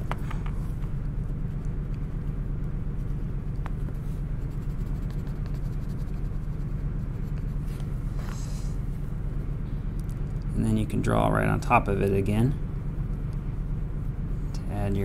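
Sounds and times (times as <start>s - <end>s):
low hum: 0.0s - 15.0s
pencil scratching on cardboard: 2.9s - 8.8s.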